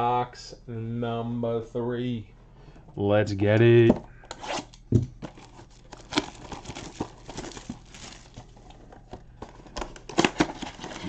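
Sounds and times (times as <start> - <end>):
plastic crinkling and rustling: 5.2 - 11.0.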